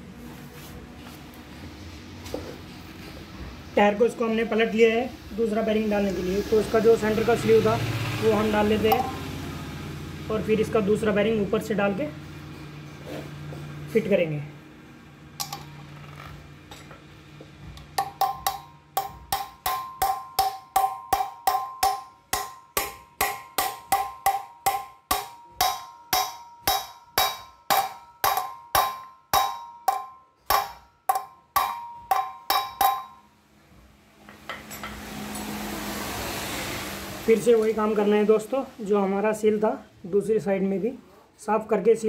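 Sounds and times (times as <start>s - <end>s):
hammer striking metal: 15.4s - 15.8s, 17.7s - 33.3s.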